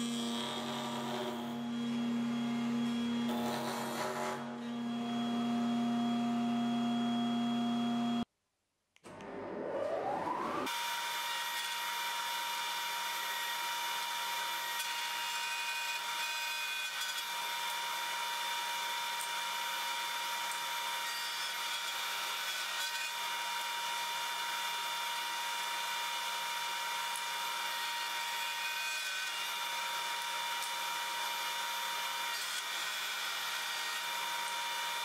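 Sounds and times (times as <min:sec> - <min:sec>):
router motor whining: 0:00.0 - 0:08.2.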